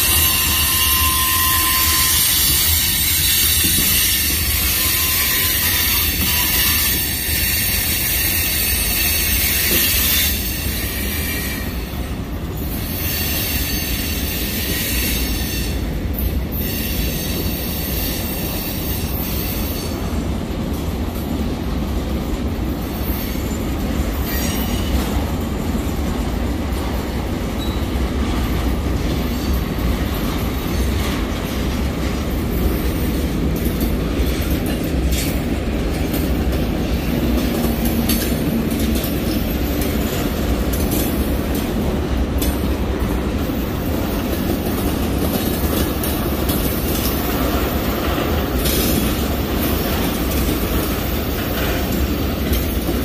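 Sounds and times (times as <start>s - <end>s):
wheels squealing: 0.0s - 11.8s
train wheels rumbling on rail: 0.0s - 53.0s.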